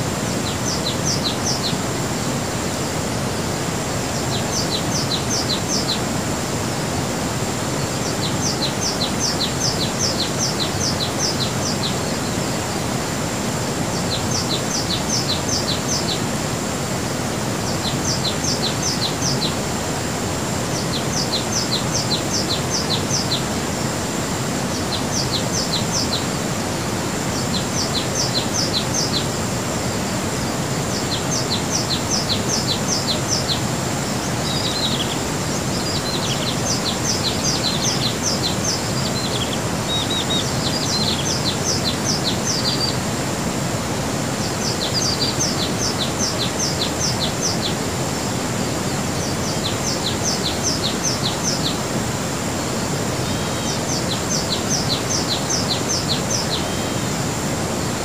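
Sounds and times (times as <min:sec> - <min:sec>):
waterfall rushing: 0:00.0 - 0:58.0
songbird chirping: 0:07.3 - 0:13.1, 0:17.0 - 0:19.7, 0:20.6 - 0:43.2, 0:44.2 - 0:57.4.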